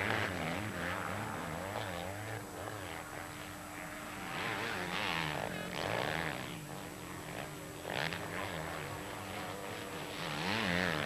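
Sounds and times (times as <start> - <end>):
motocross bike engines revving: 4.2 - 11.0.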